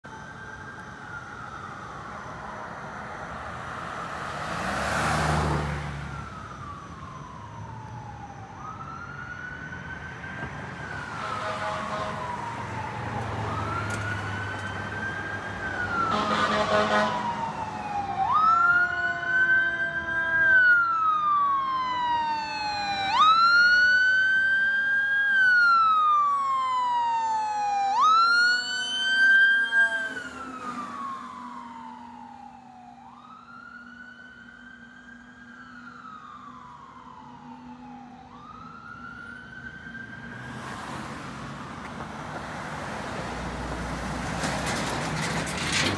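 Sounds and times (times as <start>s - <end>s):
cars swishing by: 2.3s - 7.8s, 29.1s - 32.2s, 39.9s - 45.9s
mechanical siren wailing: 5.8s - 40.4s.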